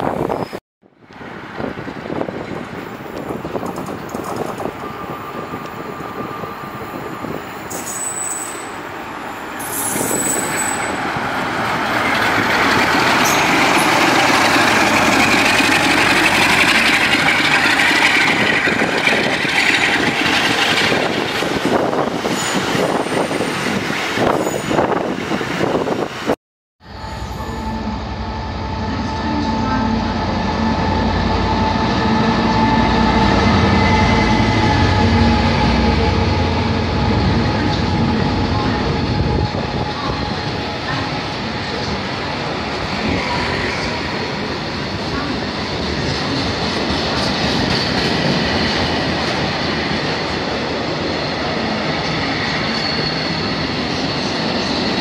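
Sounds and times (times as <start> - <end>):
diesel locomotive passing: 0.0 - 55.0.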